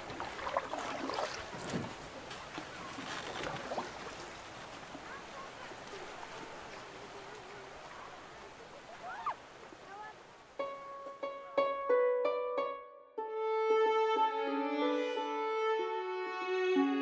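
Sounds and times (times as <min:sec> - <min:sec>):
water lapping: 0:00.0 - 0:10.6
water splashes: 0:00.0 - 0:10.6.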